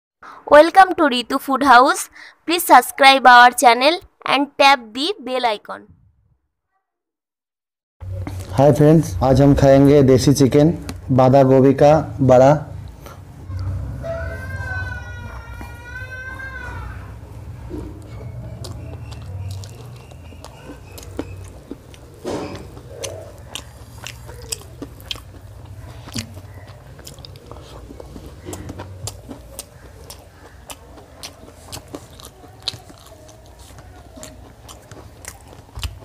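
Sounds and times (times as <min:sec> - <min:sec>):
person chewing food: 0:17.1 - 0:36.0.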